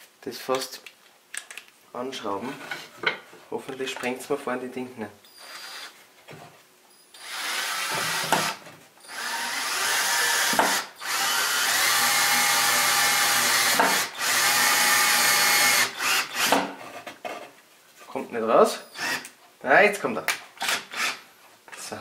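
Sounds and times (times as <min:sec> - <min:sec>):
drill-driver motor driving a screw: 0:07.2 - 0:16.6, 0:18.9 - 0:19.3, 0:20.6 - 0:21.2.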